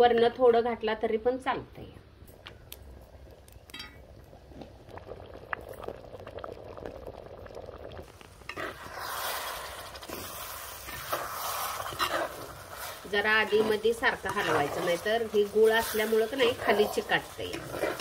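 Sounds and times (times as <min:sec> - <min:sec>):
water bubbling in a pot: 0:02.2 - 0:18.0
loud hissing sizzle: 0:07.8 - 0:18.0.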